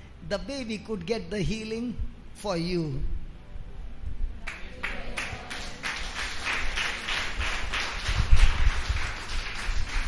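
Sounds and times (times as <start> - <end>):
people clapping in rhythm: 4.4 - 10.0.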